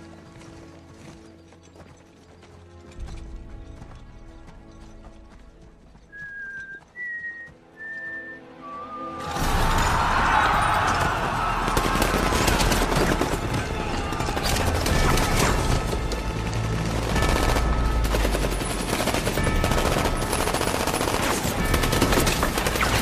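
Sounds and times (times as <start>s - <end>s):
film music: 0.0s - 23.0s
rapid gunfire: 10.9s - 23.0s.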